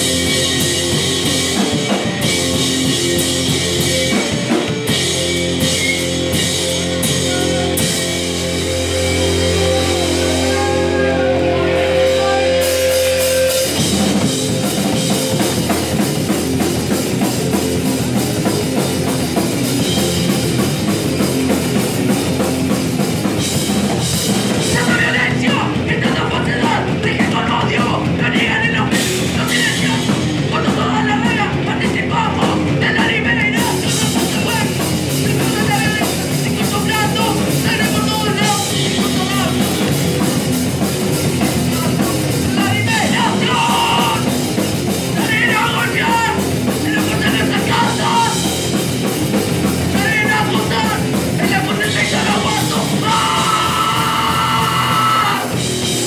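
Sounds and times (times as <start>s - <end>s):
punk band playing live: 0.0s - 56.0s
vocalist yelling: 7.0s - 8.0s, 9.3s - 12.9s, 24.6s - 39.9s, 41.7s - 44.3s, 45.2s - 48.5s, 49.9s - 55.6s.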